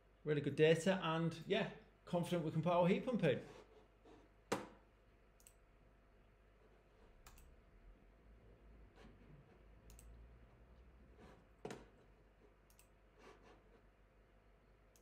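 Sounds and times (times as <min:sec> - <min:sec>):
faint computer mouse clicks: 0:05.4 - 0:05.6, 0:07.2 - 0:07.5, 0:09.9 - 0:10.2, 0:12.7 - 0:13.0.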